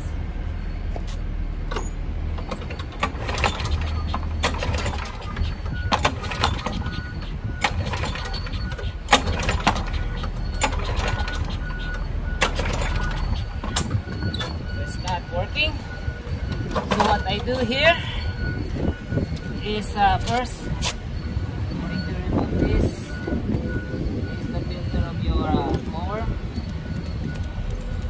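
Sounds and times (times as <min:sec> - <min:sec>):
repeating high beep: 0:05.3 - 0:27.6.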